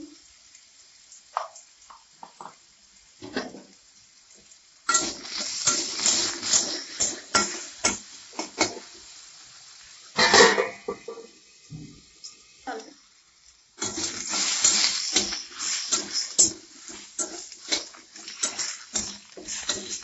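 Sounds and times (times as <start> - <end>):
potatoes frying in oil: 0.0 - 20.0
spatula scraping and clacking pan: 4.9 - 9.0, 10.2 - 11.3, 13.8 - 20.0.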